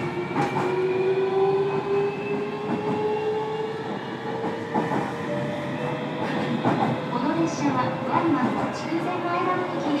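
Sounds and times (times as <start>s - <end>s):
wheels rumbling on rail: 0.0s - 10.0s
rail-joint clicks: 4.3s - 7.1s.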